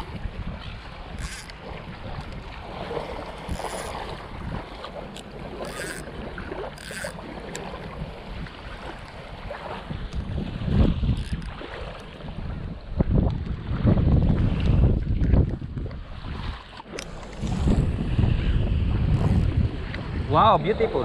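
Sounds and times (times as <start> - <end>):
small waves lapping: 0.0 - 20.2
wind buffeting microphone: 0.0 - 21.0
microphone handling noise: 17.0 - 20.1.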